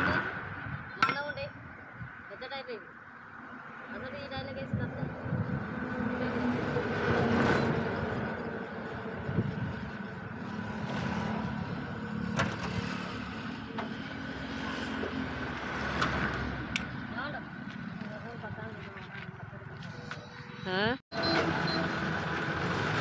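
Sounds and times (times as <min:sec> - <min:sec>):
highway traffic: 0:00.0 - 0:23.0
engine running close by: 0:04.2 - 0:20.5, 0:21.2 - 0:23.0.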